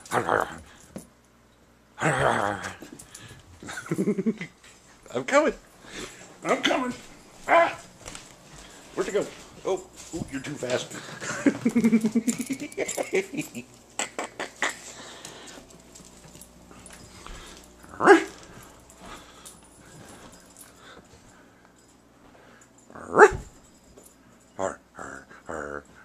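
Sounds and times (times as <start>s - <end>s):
dog paws clicking and scuffling: 2.6s - 24.8s
dog barking: 7.5s - 7.8s, 17.9s - 18.4s, 23.1s - 23.5s.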